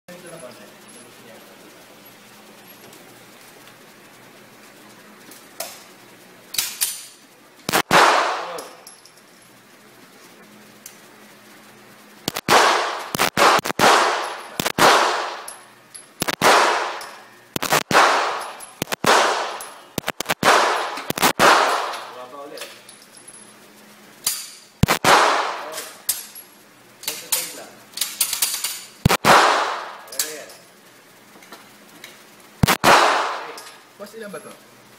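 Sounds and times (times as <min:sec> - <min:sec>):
faint gunfire cracks: 0:07.7 - 0:08.7, 0:12.3 - 0:15.5, 0:16.2 - 0:17.0, 0:17.6 - 0:22.1, 0:24.8 - 0:25.8, 0:29.1 - 0:30.1, 0:32.6 - 0:33.6
handgun shots echoing: 0:07.7 - 0:08.8, 0:12.3 - 0:15.5, 0:16.2 - 0:22.1, 0:24.8 - 0:26.0, 0:29.1 - 0:30.1, 0:32.6 - 0:33.6.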